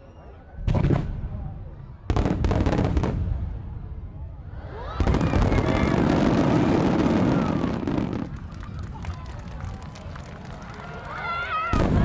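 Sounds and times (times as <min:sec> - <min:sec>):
firework bangs: 0:00.6 - 0:01.4, 0:02.1 - 0:03.6, 0:04.9 - 0:09.0, 0:11.7 - 0:12.0
rising firework whistles: 0:04.7 - 0:08.0
firework crackling: 0:05.0 - 0:10.7.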